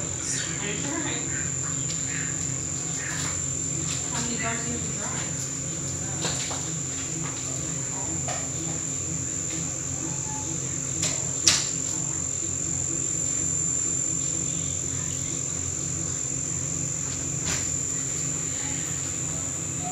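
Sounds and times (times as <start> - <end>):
high-pitched machine whine: 0.0 - 19.9
low hum: 0.0 - 19.9.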